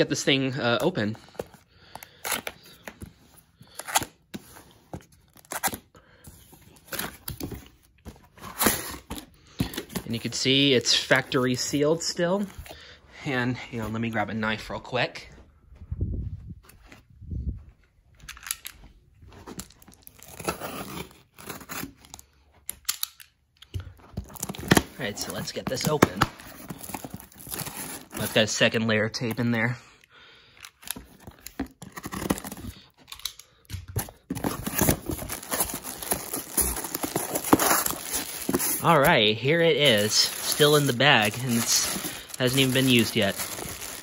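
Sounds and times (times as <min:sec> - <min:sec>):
cardboard box tearing open: 0:20.1 - 0:22.0, 0:25.8 - 0:28.4, 0:31.8 - 0:32.7, 0:34.3 - 0:39.0, 0:39.8 - 0:44.0.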